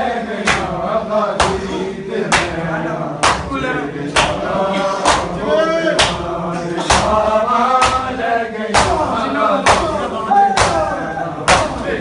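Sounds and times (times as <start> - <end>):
men chanting a lament: 0.0 - 12.0
hands slapping chests: 0.4 - 0.7, 1.4 - 1.7, 2.3 - 2.6, 3.2 - 3.5, 4.1 - 5.4, 6.0 - 7.2, 7.8 - 8.1, 8.7 - 10.0, 10.6 - 11.9.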